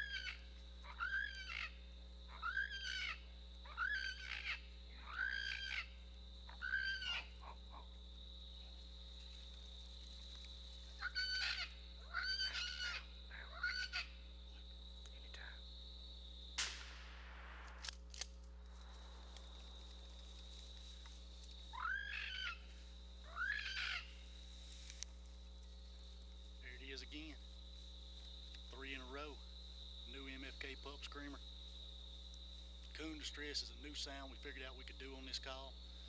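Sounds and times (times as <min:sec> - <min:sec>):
squalling animal distress call: 0:00.0 - 0:07.9, 0:11.0 - 0:14.2, 0:21.7 - 0:24.3
gunshot: 0:16.6 - 0:18.0.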